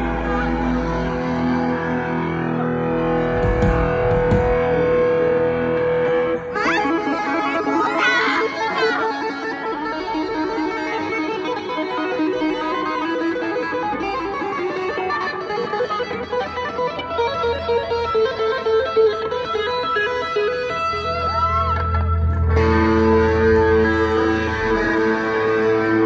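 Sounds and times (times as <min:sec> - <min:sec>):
low bass part: 0:00.0 - 0:06.6
electric guitar lead line: 0:00.0 - 0:26.0.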